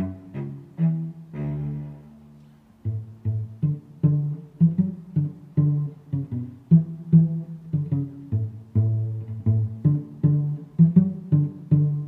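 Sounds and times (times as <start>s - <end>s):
plucked low strings music: 0.0s - 12.0s.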